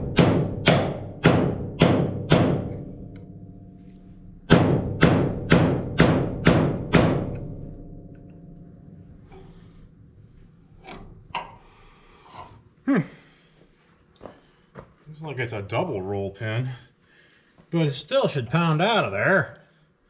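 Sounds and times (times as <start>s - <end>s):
hammer striking steel punch: 0.0s - 3.3s, 4.4s - 7.6s.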